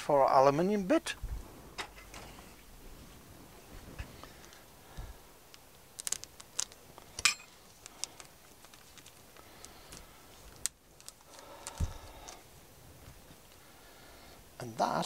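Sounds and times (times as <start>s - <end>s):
plastic packet crinkling: 5.4s - 12.4s.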